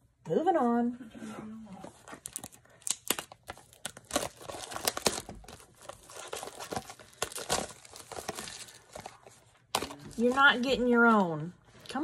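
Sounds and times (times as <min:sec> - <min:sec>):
packaging crinkling and tearing: 0:02.0 - 0:10.8.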